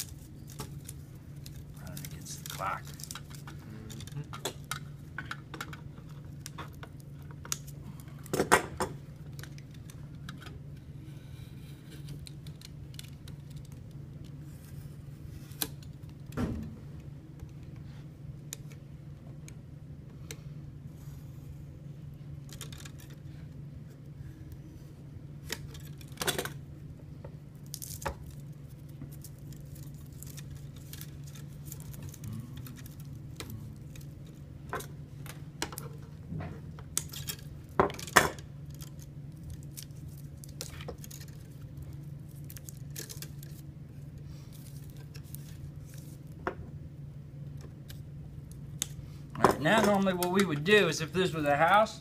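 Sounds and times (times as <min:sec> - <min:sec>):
steady low hum: 0:00.0 - 0:52.0
electrical cable being stripped: 0:36.7 - 0:43.6.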